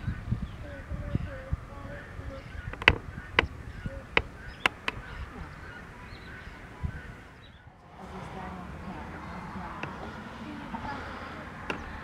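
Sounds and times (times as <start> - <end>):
distant waterbirds calling: 0.0 - 12.0
sharp clicks: 2.6 - 5.3, 11.6 - 12.0.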